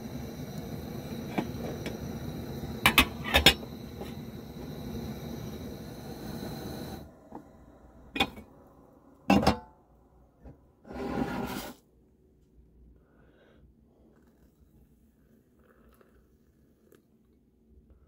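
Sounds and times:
camp stove burner hissing: 0.0s - 9.3s
metal pot lid clanks: 2.8s - 4.1s, 9.3s - 9.6s.

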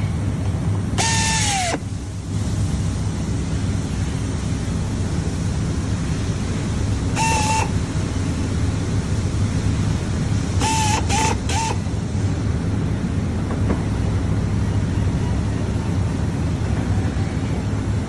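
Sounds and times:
steady low hum: 0.0s - 18.0s
power driver whining: 1.0s - 2.0s, 7.2s - 7.8s, 10.6s - 11.9s.

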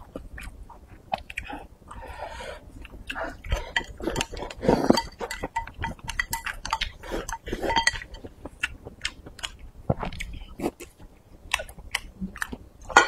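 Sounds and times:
wet chewing and crunching: 0.0s - 13.0s
chopsticks clicking on bowls: 3.5s - 8.3s.

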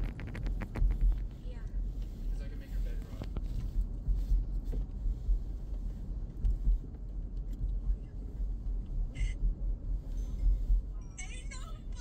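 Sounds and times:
car driving rumble from inside: 0.0s - 12.0s.

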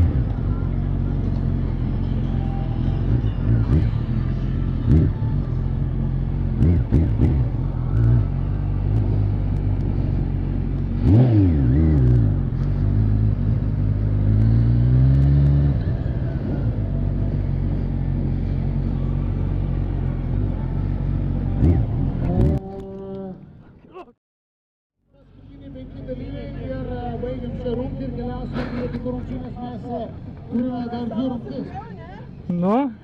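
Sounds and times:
motorcycle engine revving: 0.0s - 23.4s.

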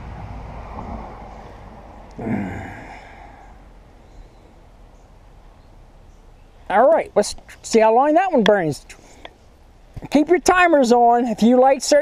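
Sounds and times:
low rumble: 0.0s - 5.4s
breathy sigh: 2.2s - 3.7s.

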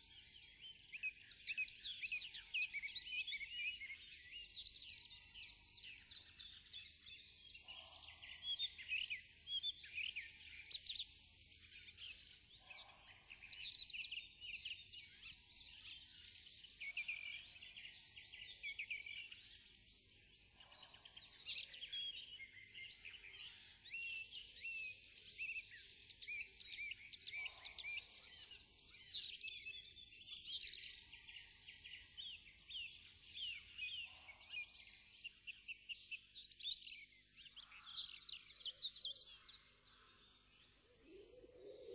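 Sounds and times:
small birds chirping: 0.0s - 41.9s.

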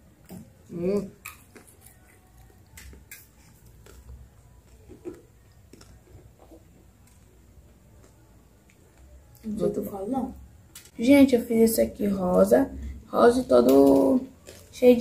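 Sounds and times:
chewing: 0.1s - 9.5s, 13.9s - 14.8s.

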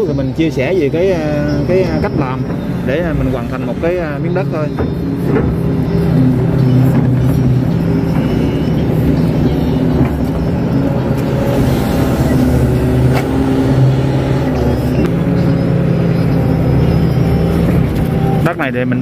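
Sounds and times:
excavator diesel engine running: 0.2s - 18.8s.

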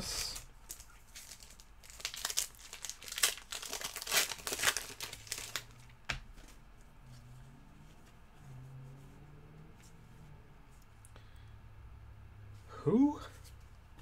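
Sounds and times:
card packaging crinkling: 0.2s - 6.6s.

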